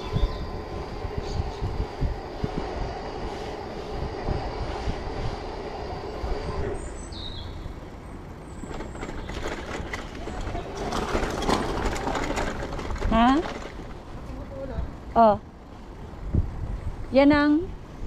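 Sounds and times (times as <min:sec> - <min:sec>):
thin steady whine: 0:00.0 - 0:08.5
bike rolling rumble: 0:00.0 - 0:18.0
wind buffeting: 0:00.0 - 0:18.0
bike rattling on cobblestones: 0:06.8 - 0:18.0.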